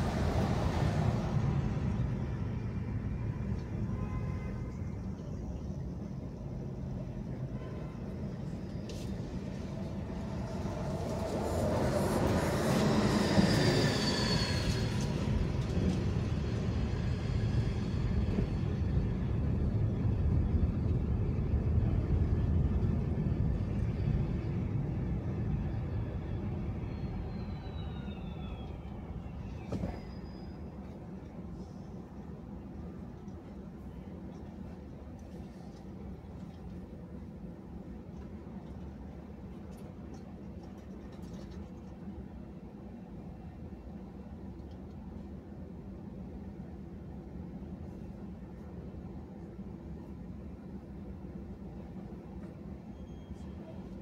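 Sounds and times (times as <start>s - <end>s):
road noise inside car: 0.0s - 54.0s
high squeal sliding down: 8.5s - 18.6s, 25.8s - 30.8s, 52.9s - 53.6s.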